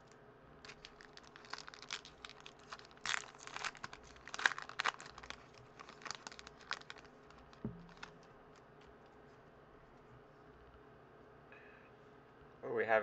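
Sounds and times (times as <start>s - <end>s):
foil wrapper crinkling: 0.6s - 8.6s
soft thump: 7.6s - 8.0s.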